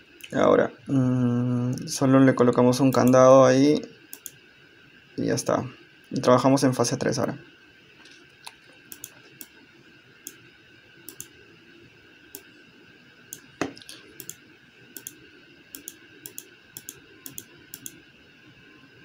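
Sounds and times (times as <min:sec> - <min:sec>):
faint steady whine: 0:00.0 - 0:19.0
computer mouse clicking: 0:02.9 - 0:03.2, 0:04.1 - 0:04.4, 0:08.4 - 0:09.6, 0:11.1 - 0:11.4, 0:13.3 - 0:14.4, 0:15.0 - 0:18.0.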